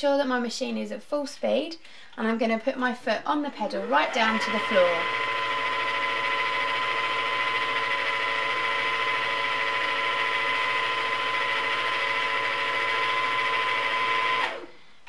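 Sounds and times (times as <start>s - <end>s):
sewing machine motor whine: 3.6s - 14.7s.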